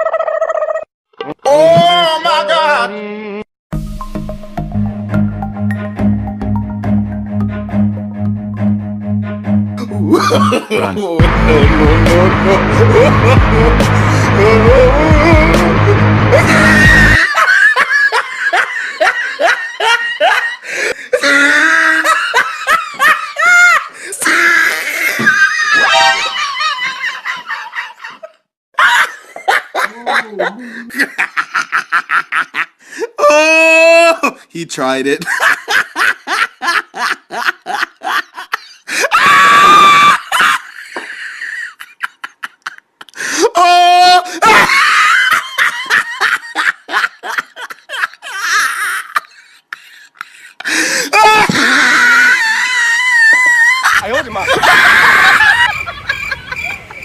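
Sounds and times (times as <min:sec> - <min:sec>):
high-pitched laughter: 0:00.0 - 0:00.9, 0:21.2 - 0:28.2, 0:51.2 - 0:57.0
person laughing: 0:00.0 - 0:00.9, 0:09.8 - 0:32.7, 0:35.2 - 0:56.9
music with heavy bass beat: 0:11.2 - 0:17.2.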